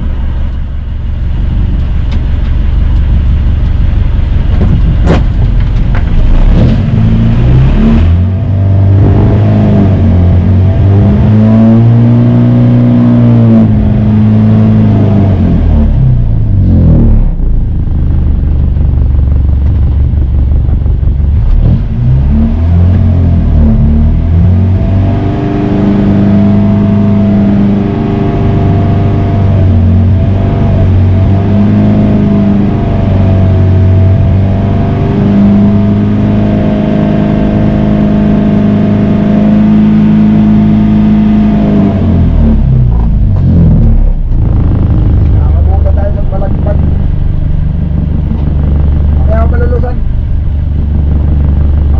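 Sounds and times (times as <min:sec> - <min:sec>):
boat engine droning: 0:00.0 - 0:09.4, 0:24.1 - 0:51.9.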